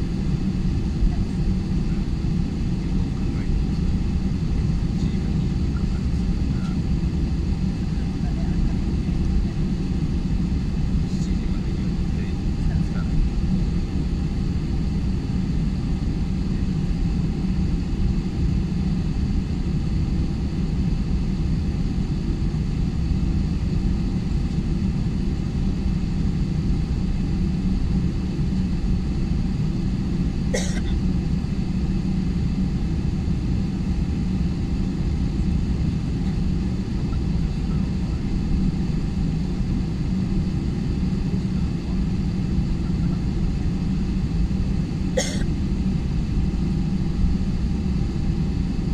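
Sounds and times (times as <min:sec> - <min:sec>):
airliner engines rumbling: 0:00.0 - 0:48.9
cabin air: 0:23.6 - 0:48.7.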